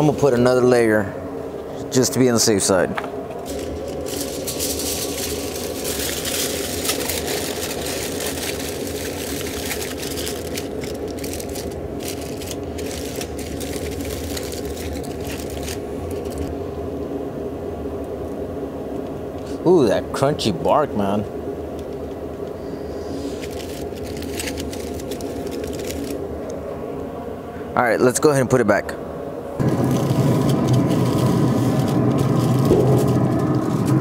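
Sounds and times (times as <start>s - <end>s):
steady low hum: 0.0s - 34.0s
aluminium foil crinkling: 3.4s - 16.6s, 21.8s - 26.3s, 29.6s - 34.0s.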